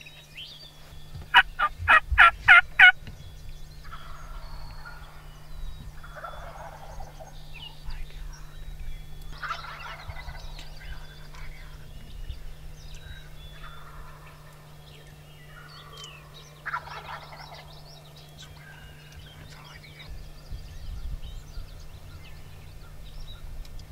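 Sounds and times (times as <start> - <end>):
small birds chirping: 0.0 - 23.9
turkeys gobbling: 1.3 - 3.0, 3.8 - 8.6, 9.2 - 12.2, 12.9 - 20.1.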